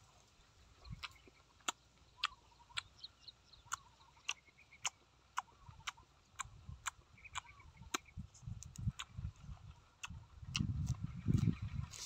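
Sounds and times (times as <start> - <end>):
faint bird chirps: 0.0 - 8.4
man chewing herb leaves: 0.0 - 12.0
wet mouth clicks and smacks: 0.9 - 2.9, 3.6 - 11.6.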